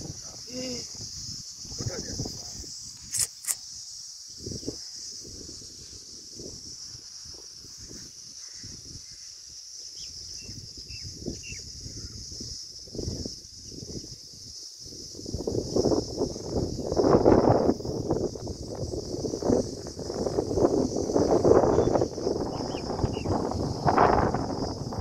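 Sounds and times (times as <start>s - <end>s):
wind buffeting microphone: 0.0s - 3.3s, 9.9s - 25.0s
insects chirring: 0.0s - 25.0s
sharp clicks: 3.0s - 3.6s
faint bird-like chirps: 9.9s - 12.2s.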